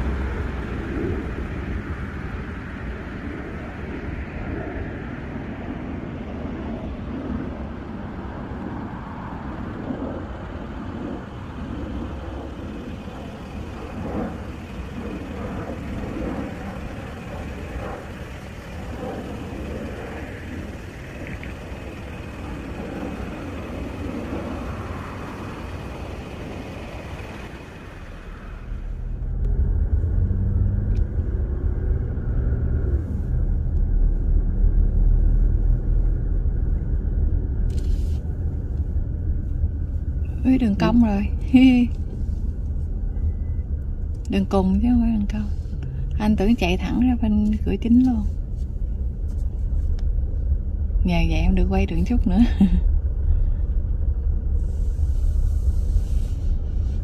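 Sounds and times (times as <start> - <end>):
car road and engine noise: 0.0 - 57.0.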